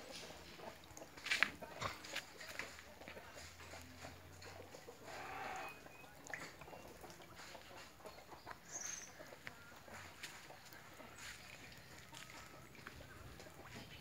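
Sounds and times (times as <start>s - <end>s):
animal call: 5.0s - 6.0s
high bird chirp: 8.4s - 9.3s.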